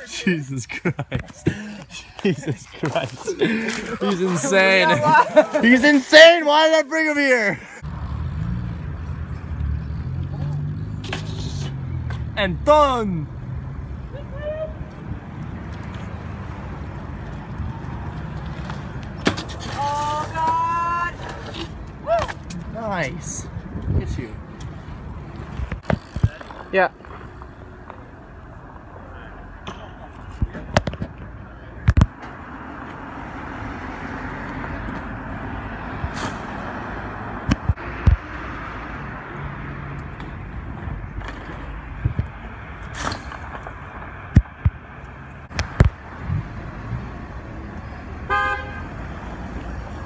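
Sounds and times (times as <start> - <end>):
bike rolling over brick pavers: 7.8 - 12.4, 16.8 - 21.9, 25.3 - 28.1
bike knocking on ground: 19.2 - 20.6
bike rolling over brick paving: 25.4 - 27.6.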